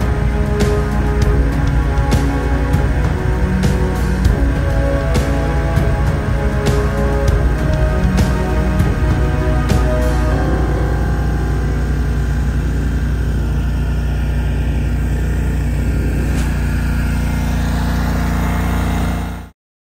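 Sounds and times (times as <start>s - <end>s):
lawn mower engine running: 0.0s - 19.5s.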